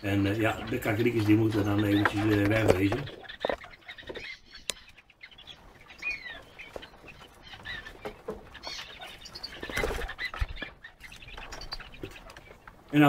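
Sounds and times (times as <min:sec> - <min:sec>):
bird wings flapping: 0:06.4 - 0:12.9.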